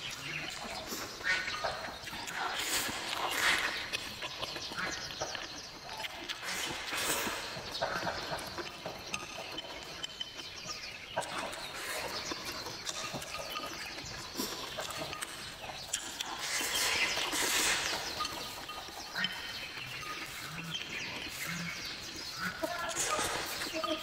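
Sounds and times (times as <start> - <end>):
wet chewing and lip smacking: 0.2 - 24.0.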